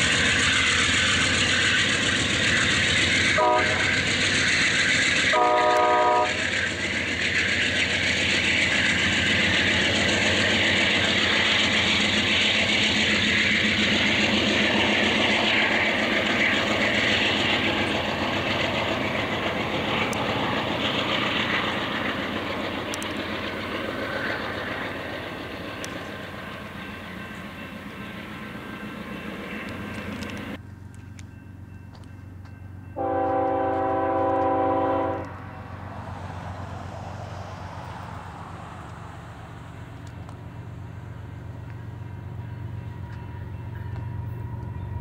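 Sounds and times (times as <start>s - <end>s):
diesel locomotive engine: 0.0s - 45.0s
train wheels rolling on rails: 0.0s - 45.0s
train horn blast: 3.4s - 4.0s, 5.3s - 6.4s, 33.0s - 35.5s.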